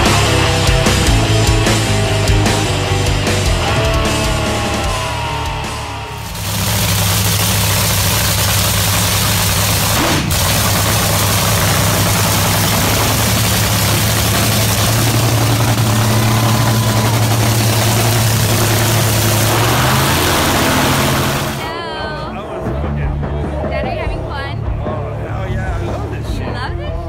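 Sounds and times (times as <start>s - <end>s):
rock music: 0.0s - 25.2s
engine idling rumble: 0.2s - 22.3s.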